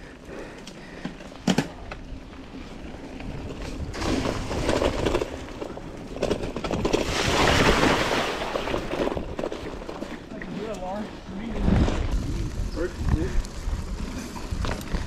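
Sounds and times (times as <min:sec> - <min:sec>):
bike tyres rolling on dirt: 0:00.0 - 0:15.0
bike splashing through creek: 0:07.0 - 0:09.0.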